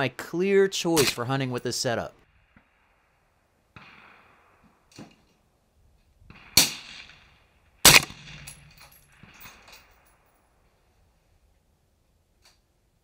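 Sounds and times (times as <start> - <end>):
suppressed rifle shots: 2.4 - 5.5, 6.2 - 10.2.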